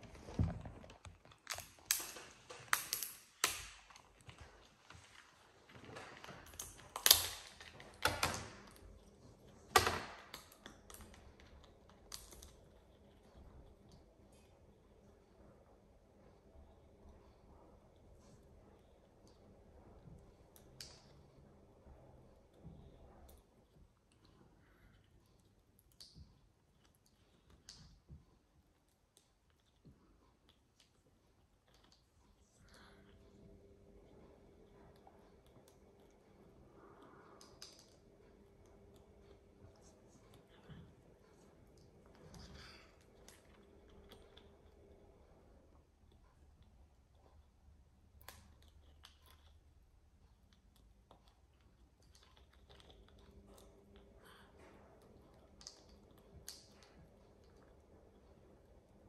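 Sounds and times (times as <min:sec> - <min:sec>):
parrot cracking nut shell: 0:06.6 - 0:07.7.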